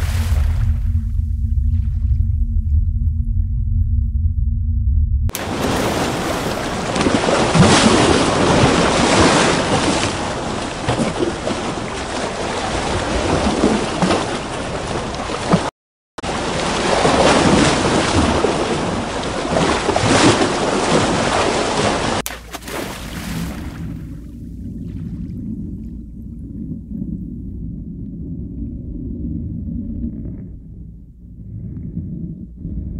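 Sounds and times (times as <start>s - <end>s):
ocean waves and surf: 0.0s - 0.8s, 5.3s - 24.1s.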